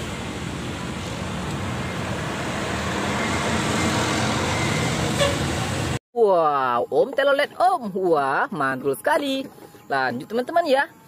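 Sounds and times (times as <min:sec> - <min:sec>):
bus engine and tyre noise: 0:00.0 - 0:06.0.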